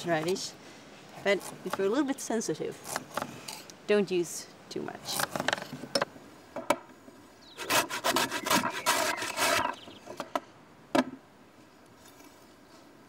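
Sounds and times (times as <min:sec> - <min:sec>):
root rasping on metal grater: 0:07.6 - 0:09.8.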